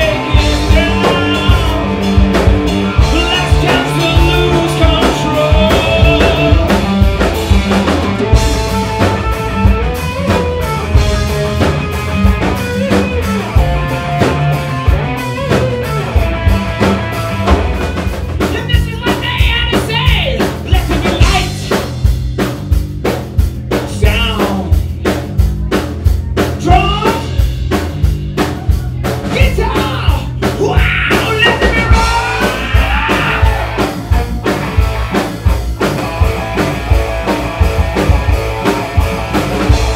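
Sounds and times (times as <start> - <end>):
person singing: 0.0 - 2.0, 3.0 - 6.9, 28.4 - 33.8
electric guitar: 0.0 - 26.6, 27.2 - 39.9
driving drum kit: 0.0 - 39.9.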